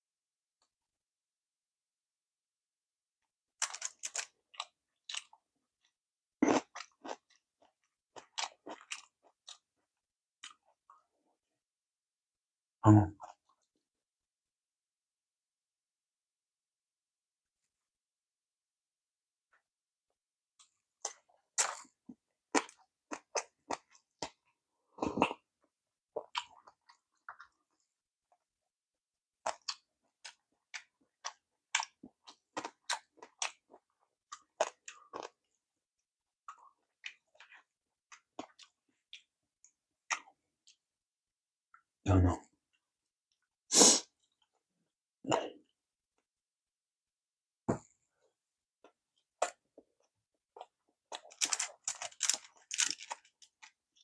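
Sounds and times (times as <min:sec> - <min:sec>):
close chewing with mouth smacks: 0:03.6 - 0:05.4, 0:29.4 - 0:35.4
mouth clicks and smacks chewing: 0:03.6 - 0:05.4.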